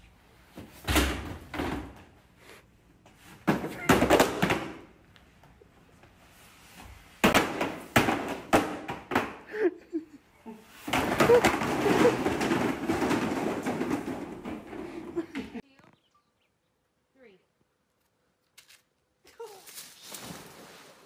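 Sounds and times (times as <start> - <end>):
cardboard boxes tumbling down stairs: 0.5 - 2.2, 3.2 - 4.9, 6.7 - 10.0, 10.6 - 15.6, 19.6 - 21.0.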